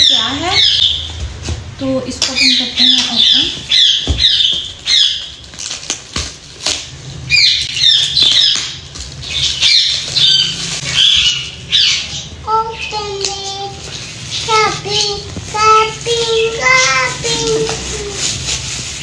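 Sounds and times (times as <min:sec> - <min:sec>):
small child singing: 0:12.4 - 0:18.4.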